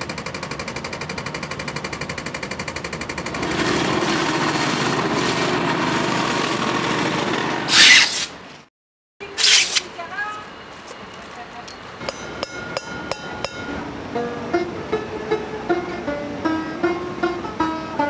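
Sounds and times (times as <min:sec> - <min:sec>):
road-works machine grinding: 0:00.0 - 0:08.6.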